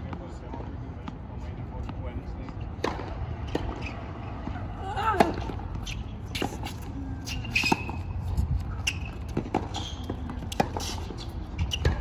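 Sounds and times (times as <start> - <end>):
tennis ball struck by racket: 2.4 - 3.8, 8.9 - 12.0
sneaker squeaks: 2.4 - 12.0.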